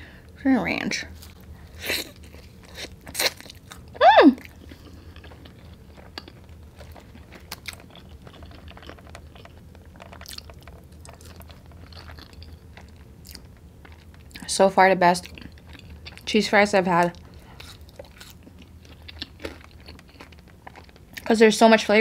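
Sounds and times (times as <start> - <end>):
crunching bites of fries: 1.1 - 14.5, 15.2 - 16.3, 16.9 - 21.4
wet chewing clicks: 2.2 - 14.5, 17.0 - 21.3.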